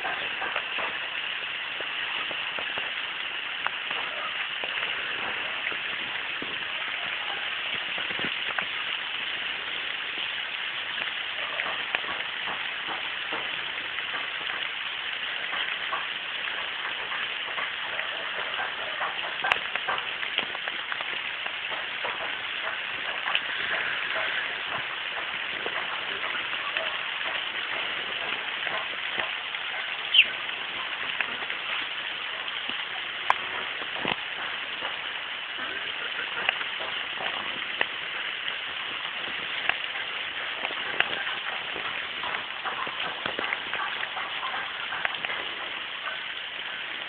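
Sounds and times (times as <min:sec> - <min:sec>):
rain on foliage: 0:00.0 - 0:47.0.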